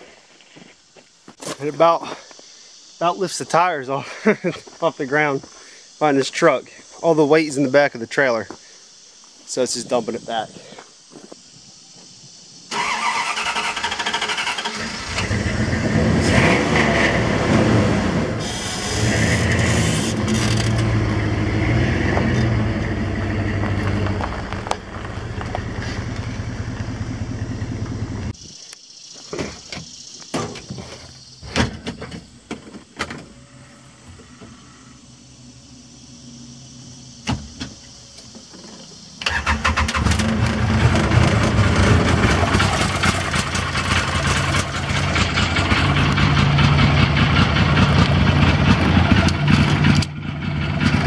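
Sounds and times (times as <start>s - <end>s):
pickup truck engine running: 18.4s - 28.4s, 40.2s - 51.0s.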